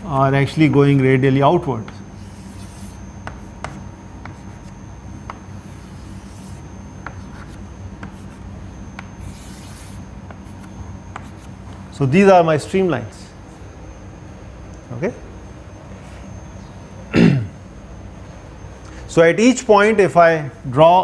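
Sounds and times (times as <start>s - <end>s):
low room hum: 0.0s - 21.0s
chalk tapping on blackboard: 1.8s - 11.5s
chalk scratching on blackboard: 2.0s - 11.6s.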